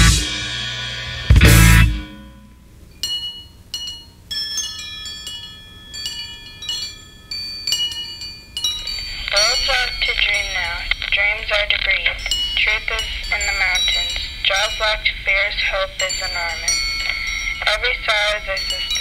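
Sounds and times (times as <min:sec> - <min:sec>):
bass guitar and drums: 0:00.0 - 0:02.4
high chime notes: 0:00.0 - 0:19.0.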